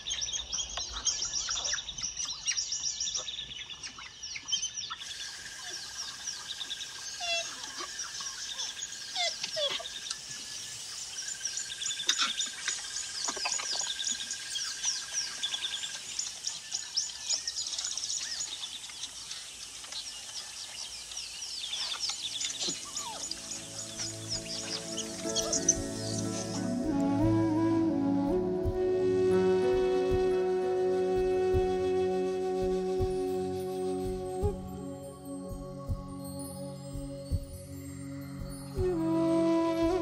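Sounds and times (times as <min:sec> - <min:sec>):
birds chirping: 0:00.0 - 0:40.0
lower sliding bird calls: 0:21.7 - 0:34.6.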